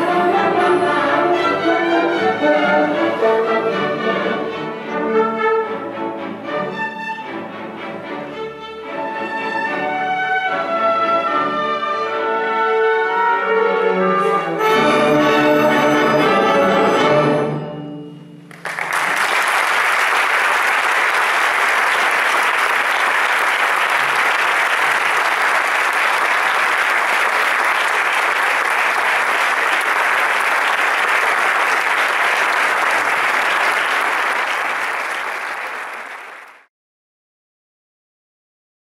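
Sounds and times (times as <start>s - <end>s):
orchestra playing classical music: 0.0s - 36.4s
audience applause: 18.5s - 36.7s.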